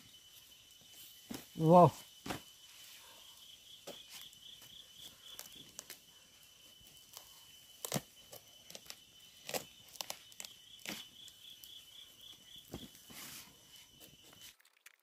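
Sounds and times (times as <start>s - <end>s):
high insect trill: 0.0s - 14.5s
knife cracking pumpkin rind: 7.8s - 8.1s, 8.7s - 11.1s.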